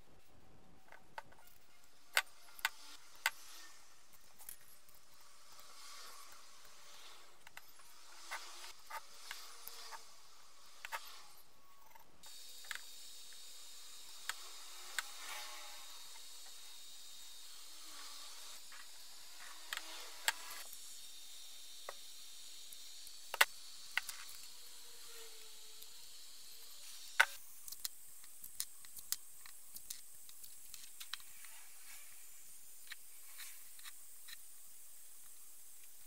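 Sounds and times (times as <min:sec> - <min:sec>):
masking tape rustling and scratching: 0:00.0 - 0:21.0, 0:21.7 - 0:36.0.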